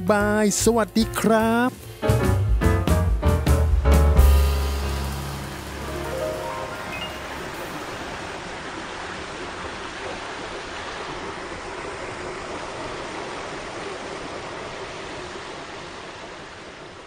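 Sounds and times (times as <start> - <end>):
waterfalls pouring into pond: 4.3 - 17.0.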